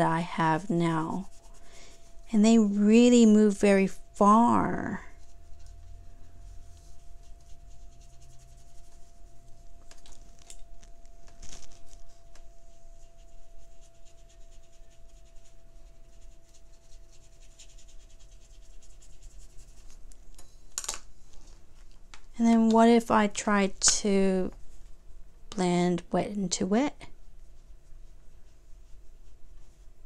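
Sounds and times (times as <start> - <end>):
paintbrush scrubbing on paper: 0.0 - 9.6, 11.6 - 20.1, 27.0 - 30.0.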